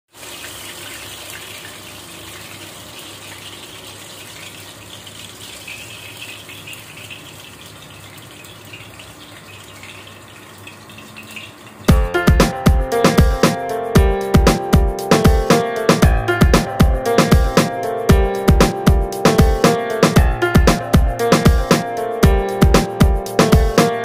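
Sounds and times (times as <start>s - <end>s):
fish sizzling in hot oil: 0.1s - 11.9s.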